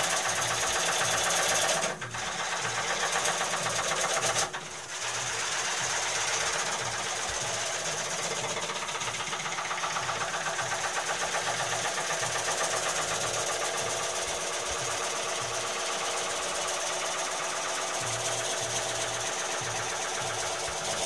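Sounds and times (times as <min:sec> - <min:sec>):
lathe running: 0:00.0 - 0:21.0
gouge cutting wood: 0:17.9 - 0:21.0.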